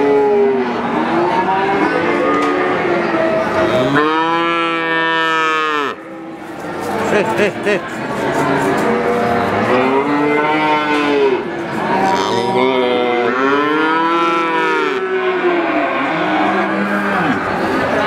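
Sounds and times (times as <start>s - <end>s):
calves mooing: 3.5s - 6.0s, 9.6s - 17.5s.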